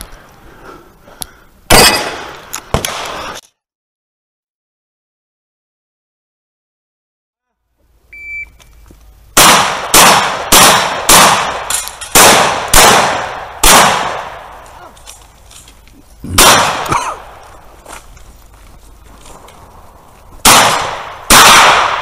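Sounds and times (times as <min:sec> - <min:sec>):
loud gunshots: 0:01.7 - 0:03.1, 0:09.4 - 0:14.6, 0:16.3 - 0:17.4, 0:20.4 - 0:22.0
electronic timer beep: 0:08.1 - 0:08.7.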